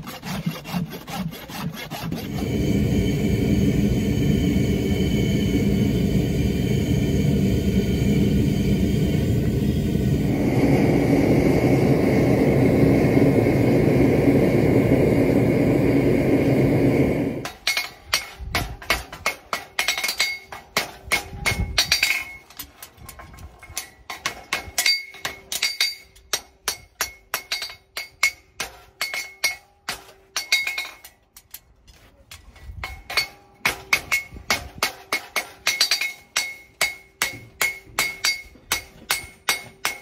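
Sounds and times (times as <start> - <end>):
steady rumbling noise: 2.2 - 29.4
hammer striking horseshoe on anvil: 17.4 - 31.6, 32.3 - 40.0.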